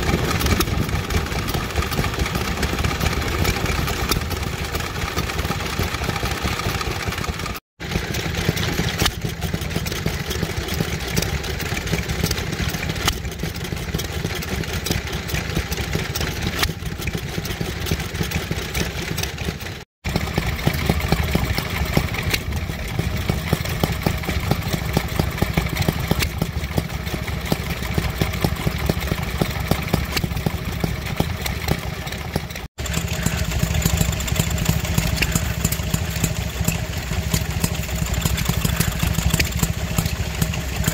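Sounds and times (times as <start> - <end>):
stationary engines running: 28.0 - 40.9.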